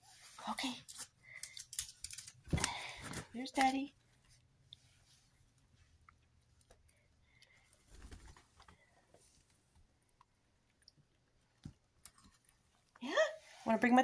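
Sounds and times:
soft rustling: 4.0s - 9.9s.

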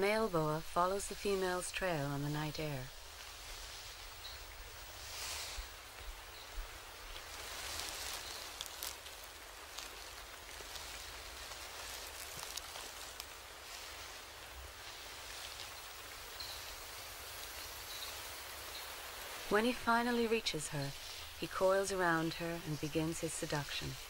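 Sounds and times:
soft steady hiss: 0.0s - 24.0s
light patters and drips: 2.9s - 19.6s.

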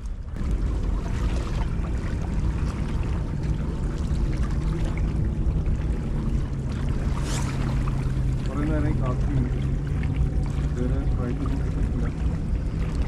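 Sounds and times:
continuous low rumble: 0.0s - 13.0s
seawater lapping among boulders: 0.0s - 13.0s.

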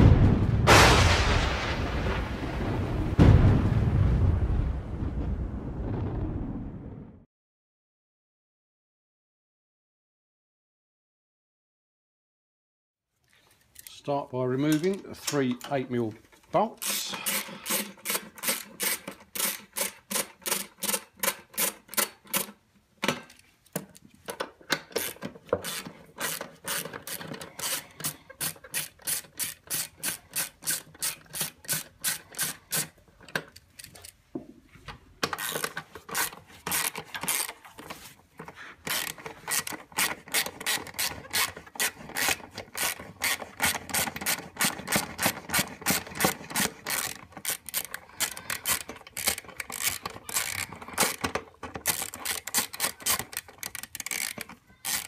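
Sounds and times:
hand ratchet clicking: 16.8s - 34.2s, 35.2s - 55.0s.

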